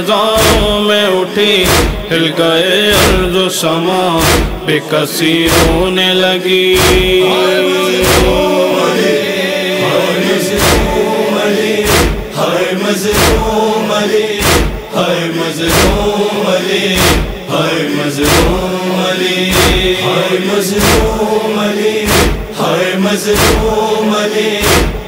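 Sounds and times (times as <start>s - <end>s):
male chorus humming drone: 0.0s - 25.0s
chest-beating thumps: 0.4s - 0.8s, 1.6s - 2.1s, 2.9s - 3.4s, 4.2s - 4.7s, 5.5s - 5.9s, 6.8s - 7.2s, 8.0s - 8.5s, 10.5s - 11.0s, 11.8s - 12.4s, 13.1s - 13.6s, 14.4s - 14.9s, 15.7s - 16.2s, 17.0s - 17.5s, 18.2s - 18.6s, 19.5s - 20.0s, 20.8s - 21.2s, 22.0s - 22.6s, 23.3s - 23.8s, 24.6s - 25.0s.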